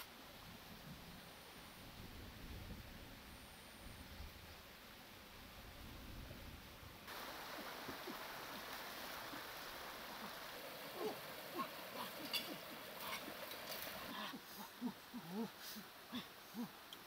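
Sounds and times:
stream flowing over rocks: 0:07.1 - 0:17.0.

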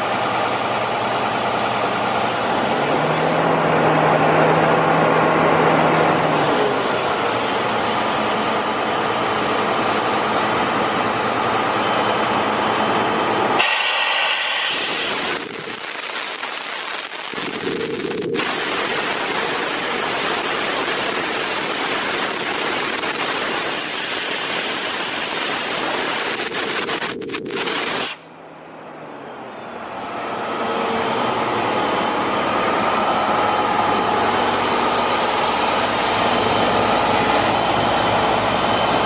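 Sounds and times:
deep diesel engine: 0:00.0 - 0:13.6, 0:28.3 - 0:39.0.

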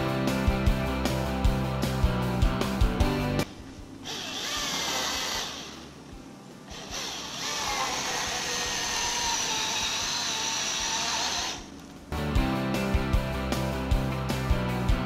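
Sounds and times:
battery chainsaw motor whining: 0:04.0 - 0:05.9, 0:06.7 - 0:11.8.

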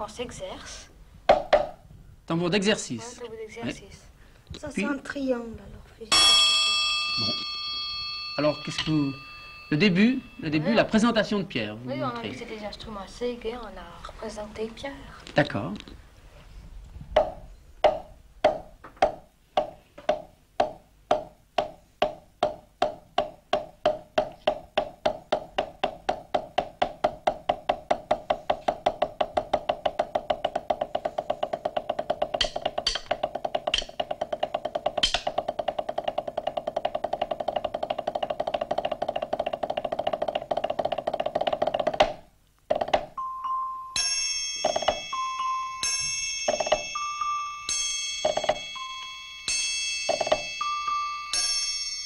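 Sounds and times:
sticks beating a practice drum: 0:01.3 - 0:01.8, 0:17.2 - 0:43.2, 0:44.6 - 0:48.9, 0:49.5 - 0:51.6
metallic clinks: 0:06.1 - 0:10.6, 0:43.2 - 0:52.0
glockenspiel notes: 0:06.1 - 0:11.3, 0:43.2 - 0:52.0
triangle ringing: 0:06.1 - 0:11.4, 0:43.2 - 0:52.0.

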